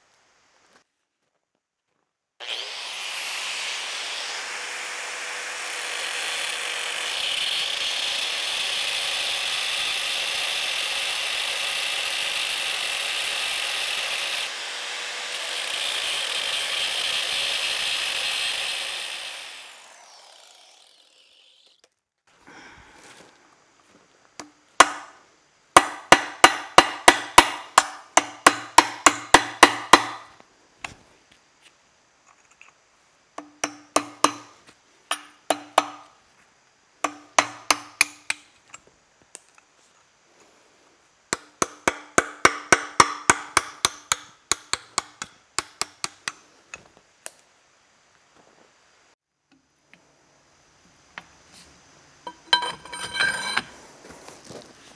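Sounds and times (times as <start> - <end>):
angle grinder cutting metal: 2.4 - 21.8.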